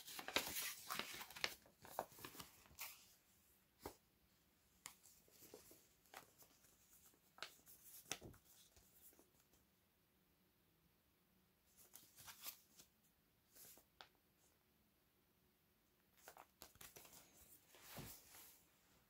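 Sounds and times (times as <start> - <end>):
paper envelope crinkling: 0.0 - 3.1.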